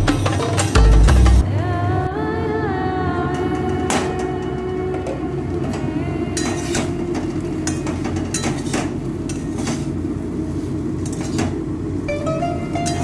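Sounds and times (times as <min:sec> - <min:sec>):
spatula scraping and knocking a pan: 0:07.6 - 0:10.0.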